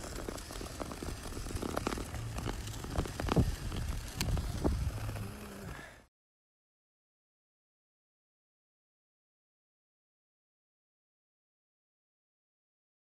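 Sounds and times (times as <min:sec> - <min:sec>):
wind rumble on microphone: 0:00.3 - 0:05.6.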